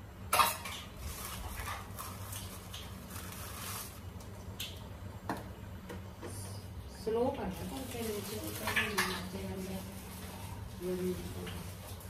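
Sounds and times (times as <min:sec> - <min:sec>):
kitchen items being handled: 0:00.3 - 0:04.1, 0:07.4 - 0:12.0.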